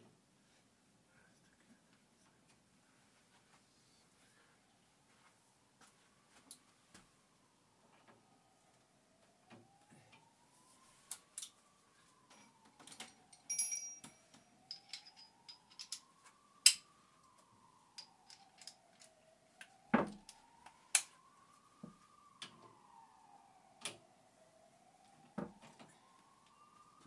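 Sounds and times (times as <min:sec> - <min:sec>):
faint rising and falling tone: 0:03.4 - 0:27.0
hand tools clicking and knocking: 0:12.3 - 0:16.0.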